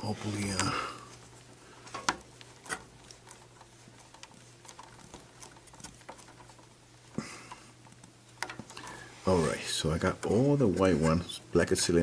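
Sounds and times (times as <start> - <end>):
wires clicking and ticking: 0.0 - 9.0.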